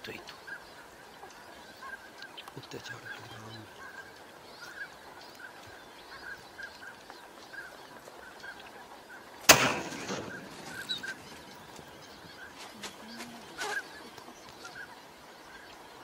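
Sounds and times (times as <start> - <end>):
shotgun shot: 9.5 - 11.2
duck calls: 9.5 - 15.7.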